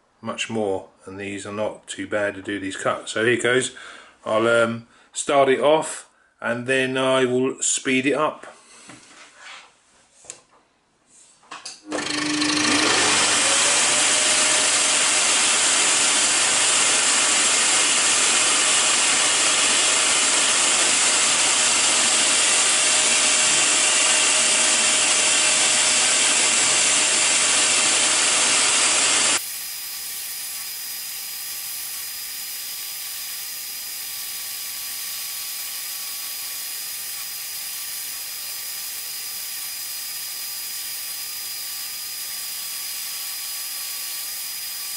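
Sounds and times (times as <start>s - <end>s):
scroll saw cutting plywood: 11.8s - 44.9s.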